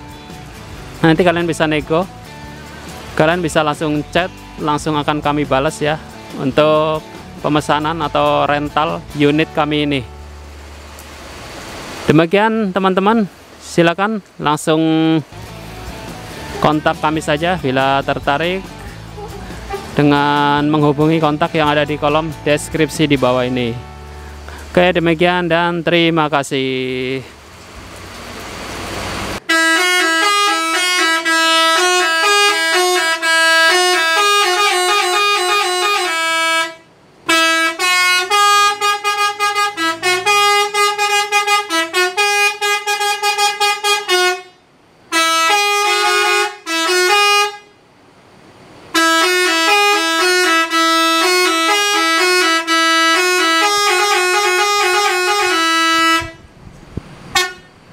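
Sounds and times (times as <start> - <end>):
bus air horns playing melodies: 16.2 - 24.8, 29.1 - 47.9, 48.9 - 56.5, 57.3 - 57.8.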